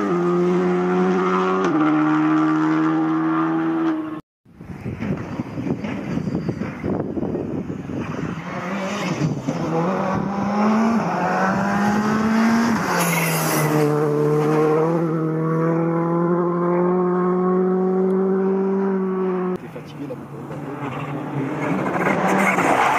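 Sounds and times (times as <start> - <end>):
car passing rush: 0.0 - 22.9
rally car engine accelerating: 8.1 - 19.6.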